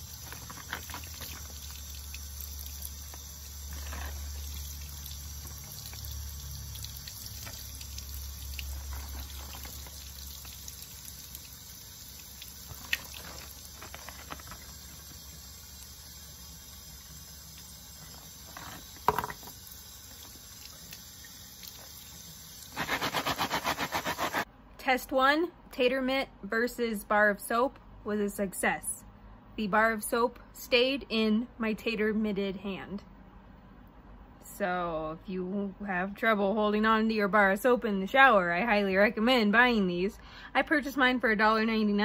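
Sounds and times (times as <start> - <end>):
tap water running into sink: 0.0 - 22.9.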